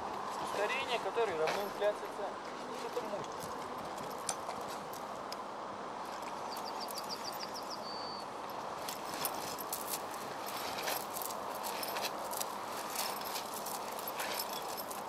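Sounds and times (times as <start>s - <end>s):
steady outdoor hiss: 0.0s - 15.0s
bird singing high notes: 6.5s - 8.3s
bag clicks and rustles: 8.8s - 15.0s.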